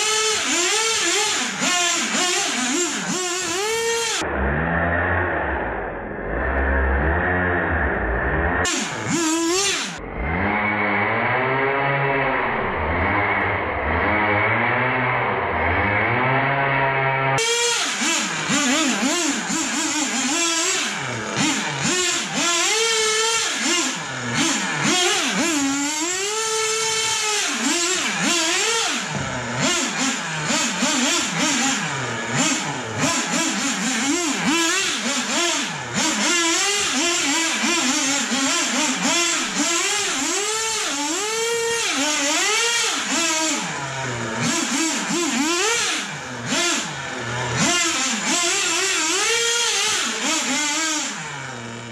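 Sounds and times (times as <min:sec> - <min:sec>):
small nitro engine revving: 0:00.0 - 0:51.9.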